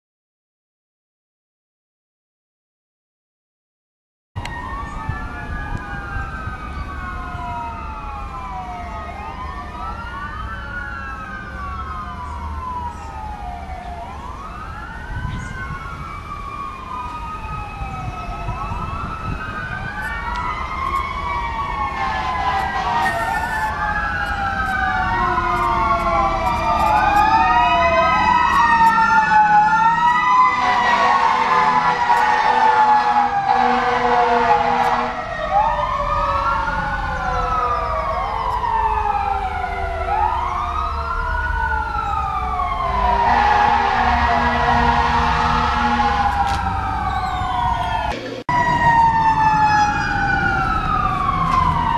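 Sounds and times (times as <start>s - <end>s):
fire truck sirens wailing: 4.4s - 51.9s
horn blasts: 22.0s - 23.7s, 30.5s - 35.2s, 43.0s - 46.5s.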